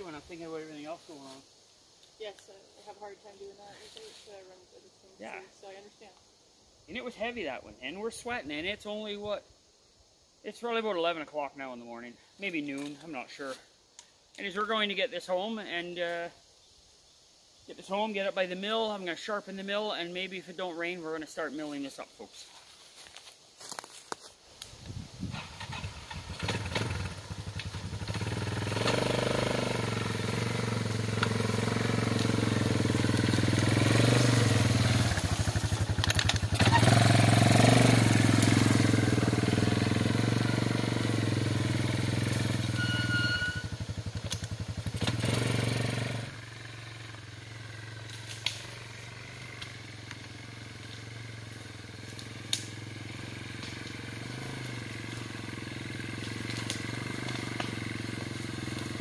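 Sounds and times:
atv engine running: 0:24.9 - 0:59.0.

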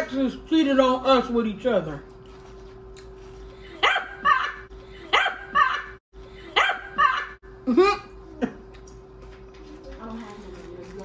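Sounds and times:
dog barking: 0:03.8 - 0:05.9, 0:06.6 - 0:07.3.

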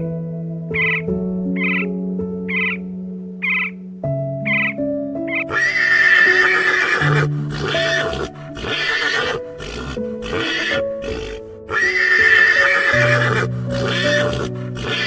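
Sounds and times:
music of sustained notes: 0:00.0 - 0:15.0
horse whinnying: 0:05.4 - 0:15.0.

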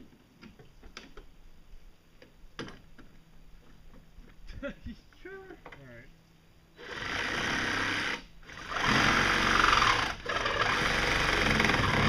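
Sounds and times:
angle grinder cutting: 0:06.8 - 0:12.0.

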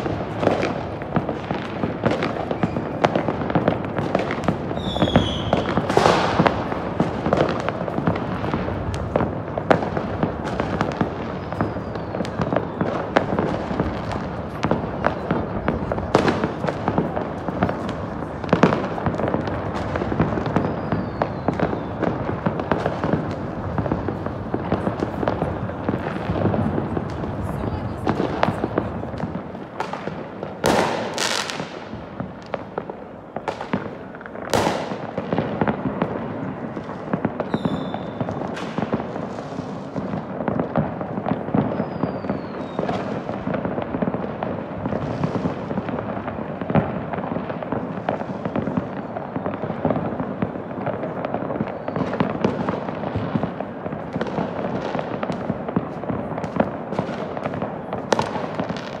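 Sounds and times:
distant fireworks crackle: 0:00.0 - 0:59.0
sharp loud firework bangs: 0:00.0 - 0:59.0
falling firework whistle: 0:02.0 - 0:07.1, 0:10.5 - 0:16.5, 0:19.6 - 0:25.2, 0:37.4 - 0:40.1, 0:41.3 - 0:43.4, 0:48.2 - 0:50.8, 0:51.5 - 0:53.4.

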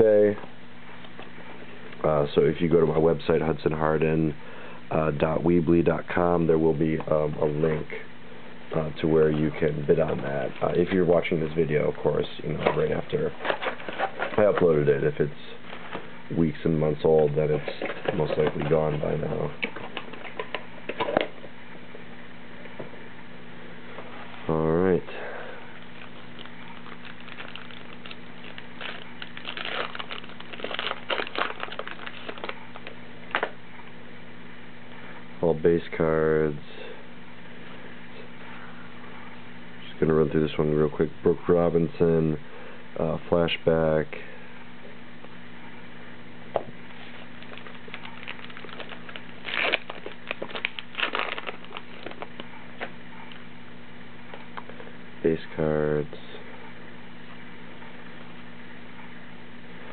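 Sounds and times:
sharp crackle: 0:25.8 - 0:33.5, 0:47.3 - 0:52.5
wrapper tearing and crinkling: 0:26.0 - 0:33.5, 0:47.3 - 0:52.4.

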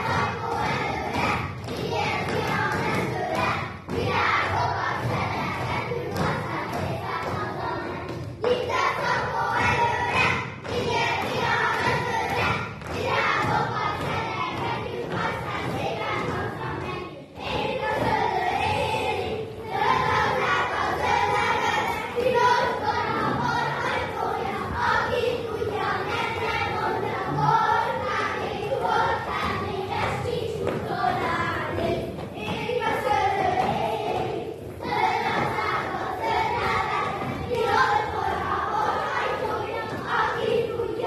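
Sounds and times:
children singing: 0:00.0 - 0:41.0.

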